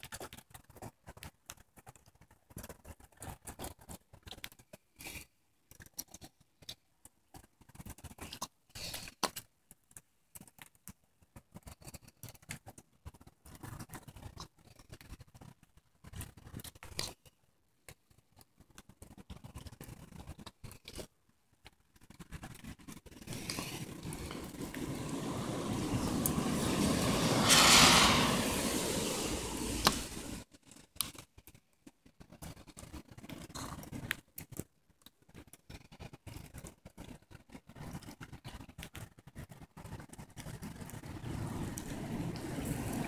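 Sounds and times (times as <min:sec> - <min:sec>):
light rain pattering: 0:00.0 - 0:43.0
low rumble of wind: 0:23.3 - 0:30.4, 0:41.0 - 0:43.0.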